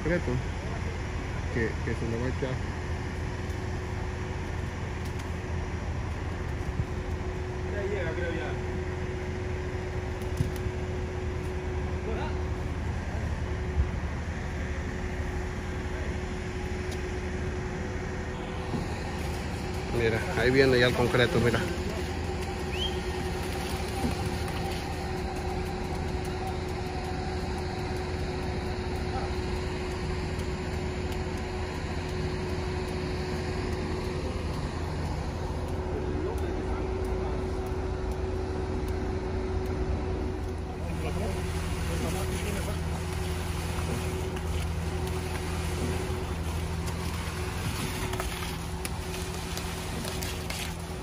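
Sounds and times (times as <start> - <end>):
pump engine humming: 0.0 - 51.0.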